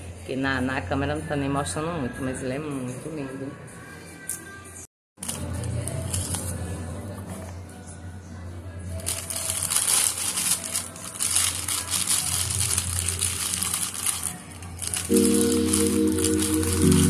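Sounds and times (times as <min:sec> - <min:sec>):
music: 0:00.0 - 0:17.0
plastic wrapping crinkling: 0:05.2 - 0:06.6, 0:08.9 - 0:17.0.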